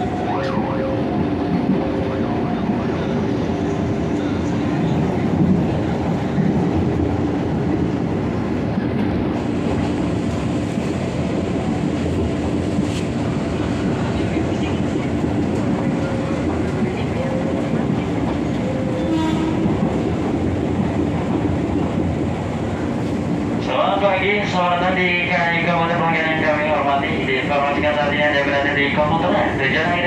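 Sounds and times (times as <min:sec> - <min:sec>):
train hum: 0:00.0 - 0:30.0
train wheels rumbling on rails: 0:00.0 - 0:30.0.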